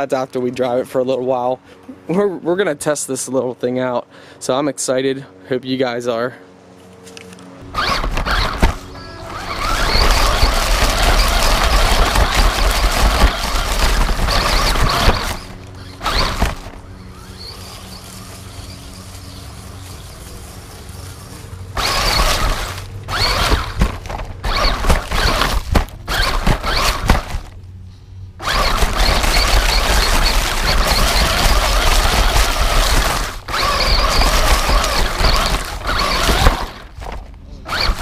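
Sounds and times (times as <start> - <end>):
toy truck motor whine: 7.6 - 27.6, 28.4 - 38.0.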